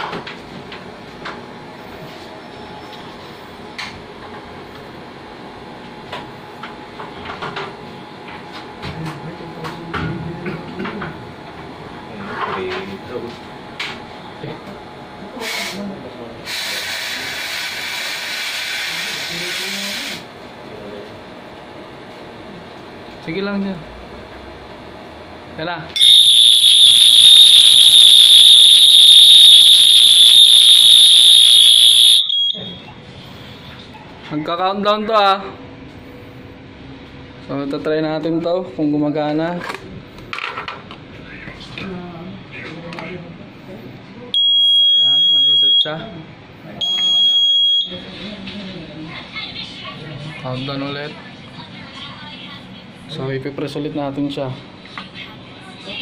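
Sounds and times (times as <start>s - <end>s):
equipment room hum: 0.0s - 16.5s, 20.2s - 56.0s
fire alarm high-pitched tone: 26.0s - 32.9s, 44.4s - 45.9s, 46.8s - 48.0s.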